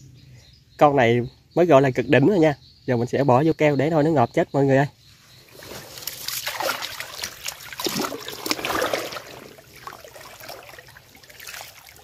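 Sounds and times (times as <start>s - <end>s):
shallow water splashing: 5.5s - 12.0s.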